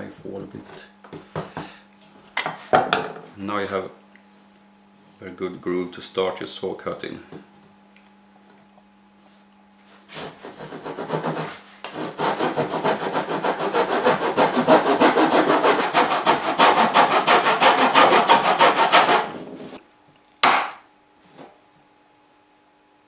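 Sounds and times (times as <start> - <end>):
hand saw cutting wood: 10.1 - 19.5.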